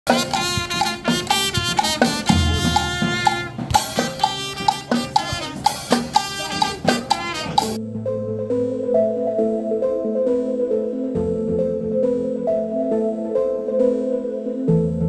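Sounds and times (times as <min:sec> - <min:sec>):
upbeat music with drum beat: 0:00.1 - 0:07.8.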